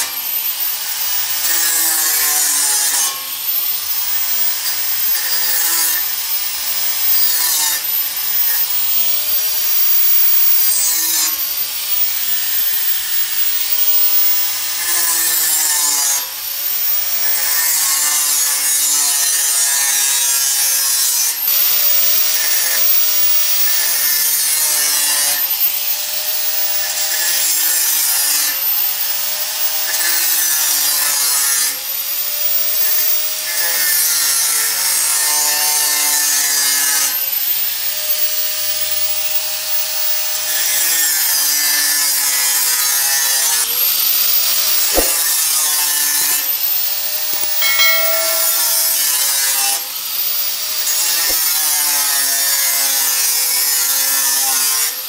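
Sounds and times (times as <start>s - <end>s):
angle grinder cutting steel: 0.0s - 9.9s, 10.6s - 25.3s, 42.8s - 55.0s.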